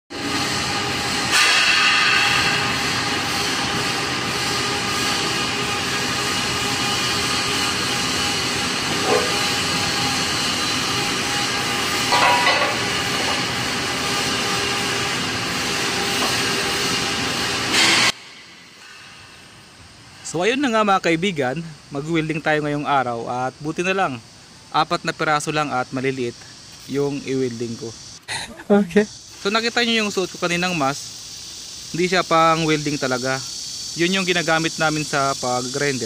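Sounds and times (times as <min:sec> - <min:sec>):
machinery hissing: 0:00.1 - 0:36.0.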